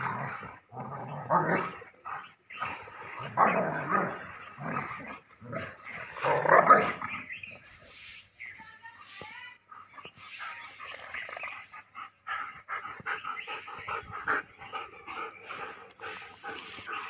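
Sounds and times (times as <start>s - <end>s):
dogs panting: 1.8s - 3.2s, 9.2s - 17.0s.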